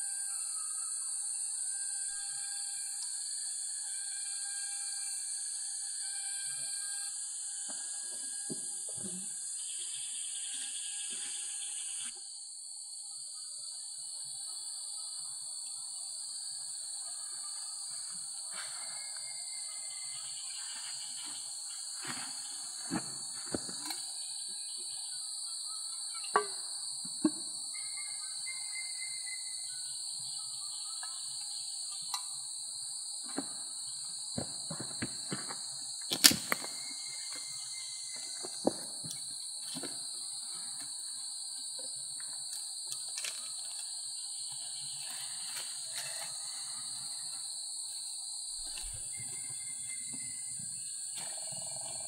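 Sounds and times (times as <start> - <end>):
jungle insects droning: 0.0 - 52.0
sharp snap: 36.1 - 36.7.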